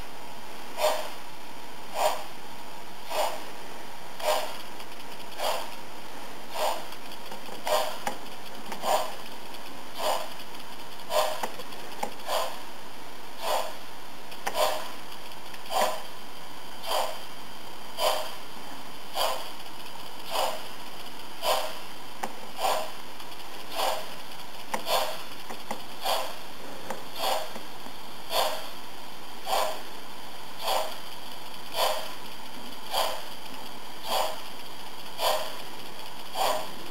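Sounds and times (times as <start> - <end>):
model steam locomotive chuffs: 6.4 - 12.7, 13.3 - 36.9.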